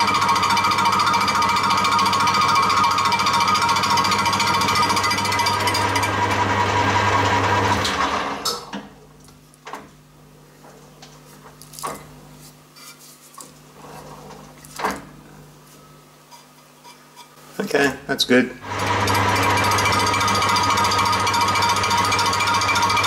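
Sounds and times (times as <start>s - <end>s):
metal lathe machining: 18.6s - 23.0s.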